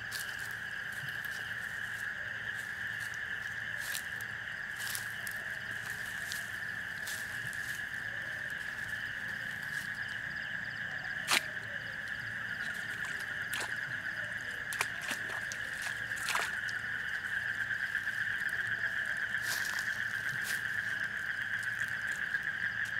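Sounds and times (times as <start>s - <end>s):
night insects trilling: 0.0s - 22.9s.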